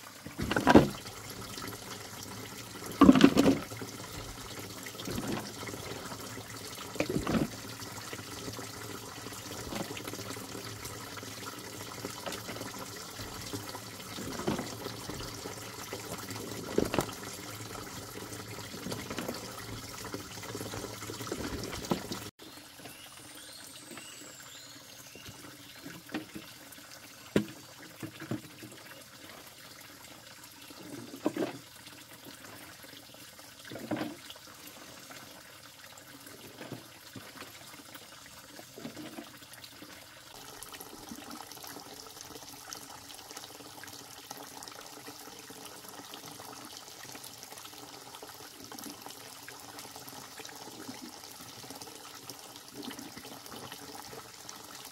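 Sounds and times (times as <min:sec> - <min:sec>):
running water splashing: 0:00.0 - 0:30.0.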